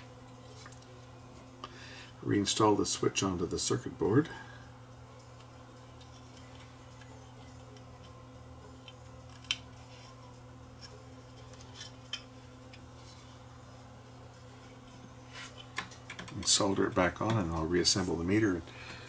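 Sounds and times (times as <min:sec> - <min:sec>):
faint low hum: 0:00.0 - 0:19.0
small clicks and taps: 0:15.6 - 0:16.5.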